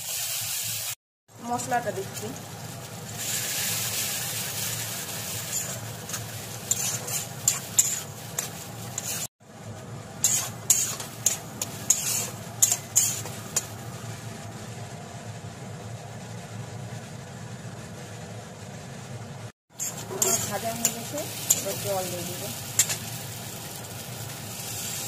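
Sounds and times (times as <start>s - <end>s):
paste sizzling in hot oil: 0.0s - 9.3s, 10.1s - 14.0s, 19.7s - 25.0s
spatula scraping metal pan: 5.4s - 9.3s, 10.2s - 13.7s, 19.8s - 21.8s.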